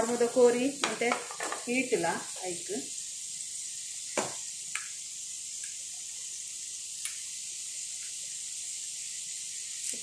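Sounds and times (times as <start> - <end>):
ghee sizzling in a pan: 0.0 - 10.0.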